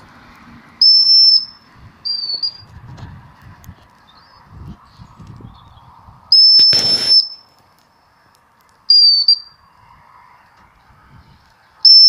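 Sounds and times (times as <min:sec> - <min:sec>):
shepherd's whistle: 0:02.1 - 0:02.6, 0:06.3 - 0:07.4.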